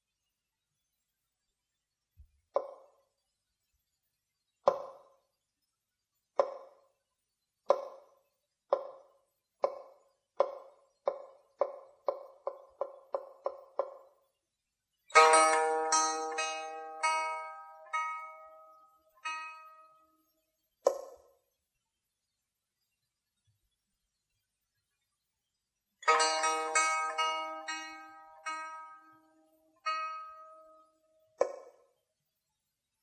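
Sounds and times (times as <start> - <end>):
woody percussive knocks on pipa: 6.4 - 6.8, 9.6 - 14.0, 15.2 - 18.3, 26.1 - 29.0, 31.4 - 31.7
plucked pipa strings chord: 15.2 - 19.9, 26.1 - 29.3, 29.9 - 30.8.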